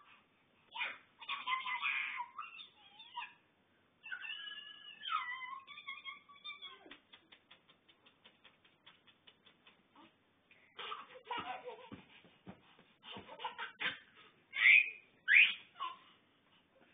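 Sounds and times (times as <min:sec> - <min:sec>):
baby laughing: 0:10.8 - 0:12.2, 0:13.0 - 0:16.0.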